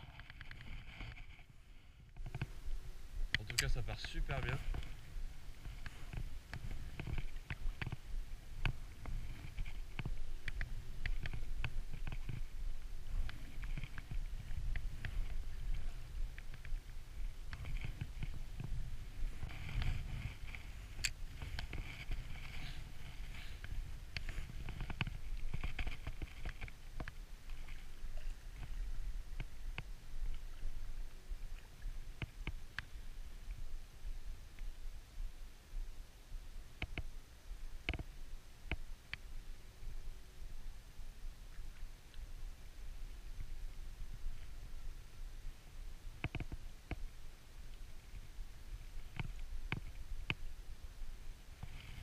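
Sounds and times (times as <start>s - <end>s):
water lapping: 0.0s - 33.7s
wind buffeting microphone: 2.2s - 26.5s.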